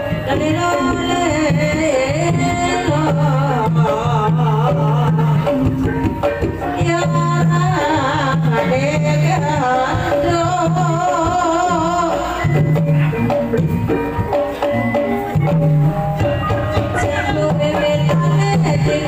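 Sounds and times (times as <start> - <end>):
gamelan music: 0.0 - 19.0
hand drums: 0.0 - 19.0
person singing wavering melody: 15.2 - 19.0.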